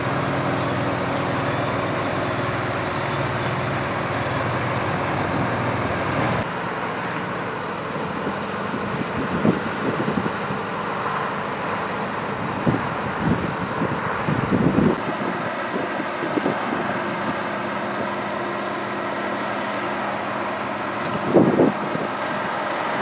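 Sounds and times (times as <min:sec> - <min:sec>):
truck diesel engine running: 0:00.0 - 0:23.0
wind buffeting microphone: 0:08.1 - 0:11.2, 0:12.0 - 0:18.3, 0:20.9 - 0:23.0.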